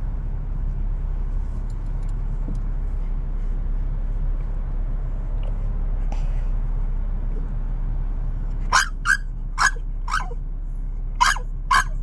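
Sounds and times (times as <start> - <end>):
car engine idling: 0.0 - 12.0
dog yipping and whining: 8.7 - 10.4, 11.2 - 12.0.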